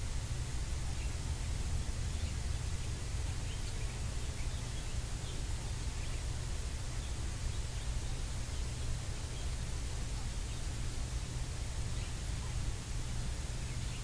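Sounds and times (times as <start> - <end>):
low rumble and hiss: 0.0 - 14.0.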